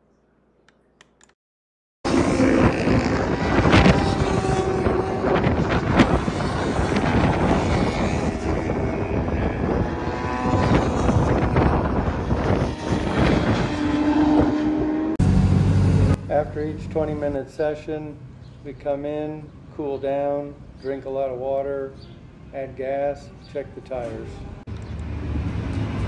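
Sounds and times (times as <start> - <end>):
motorcycle engines revving past: 2.1 - 17.1, 23.7 - 26.0.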